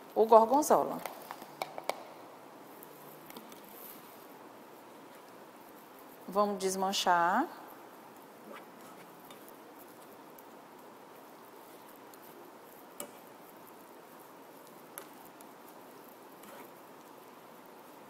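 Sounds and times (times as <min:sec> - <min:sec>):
cheese sizzling in a frying pan: 0:09.1 - 0:18.0.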